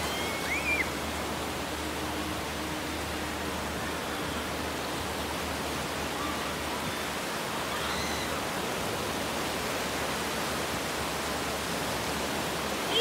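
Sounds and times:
ocean waves breaking on beach: 0.0 - 13.0.

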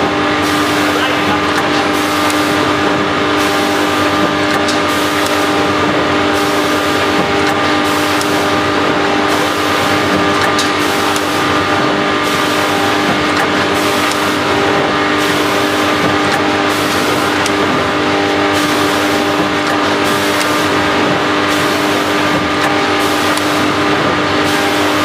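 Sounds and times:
packing machine humming: 0.0 - 25.0.

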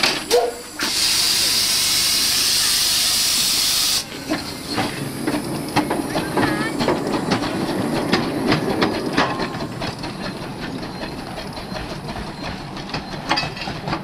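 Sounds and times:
steam hiss: 0.0 - 6.8
train wheels clicking over rail joints: 0.0 - 14.0.

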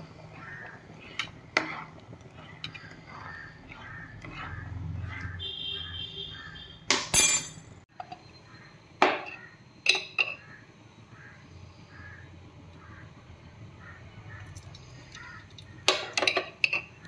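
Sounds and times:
metal utensils clinking against pans: 6.9 - 7.7, 15.9 - 17.0.

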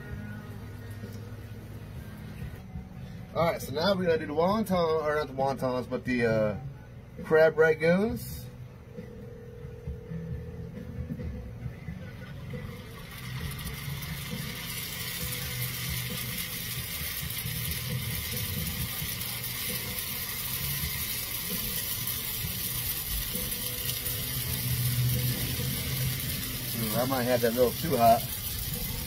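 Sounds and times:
hot oil sizzling in a skillet: 12.2 - 29.0.

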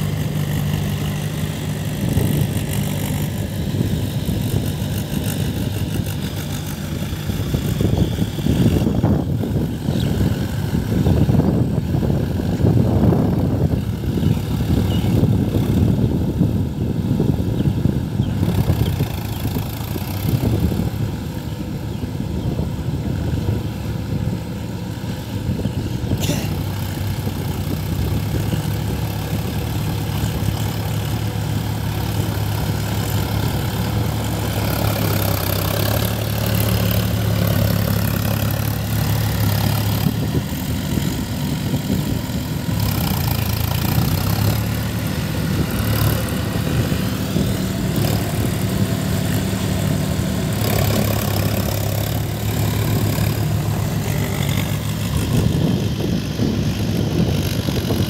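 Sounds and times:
diesel tractor engine droning: 0.0 - 58.0.

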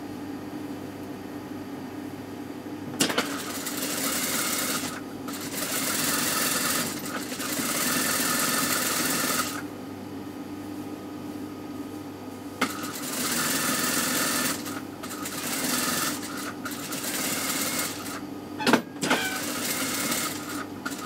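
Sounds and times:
sewing machine stitching: 3.0 - 9.6, 12.6 - 21.0
steady low hum: 9.6 - 13.0.

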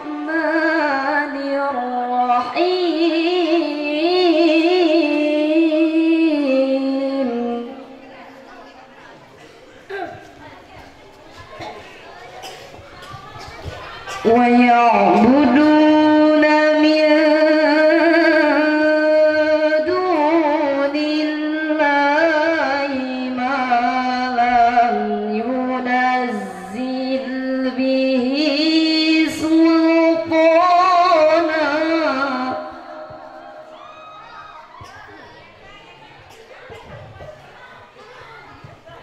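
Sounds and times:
woman reciting melodically: 0.0 - 8.5, 12.4 - 33.9.

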